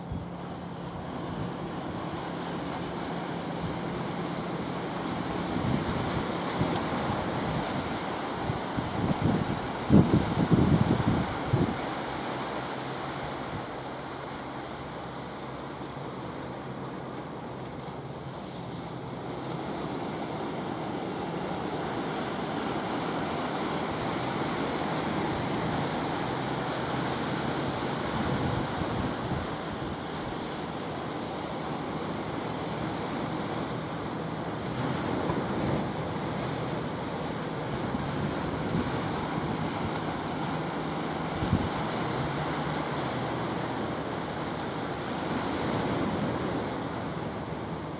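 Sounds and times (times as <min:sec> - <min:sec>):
boat engine drone: 0:00.0 - 0:47.9
wind buffeting microphone: 0:03.4 - 0:12.3, 0:19.7 - 0:30.6, 0:34.6 - 0:47.2.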